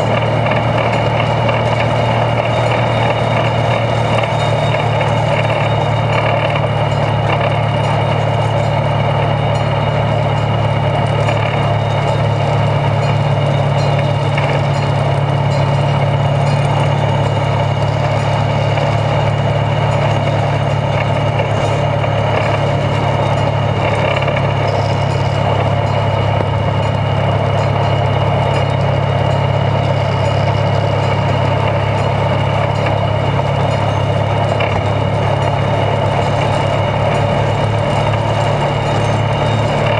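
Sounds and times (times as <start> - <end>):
locomotive engine running under load: 0.0 - 39.9.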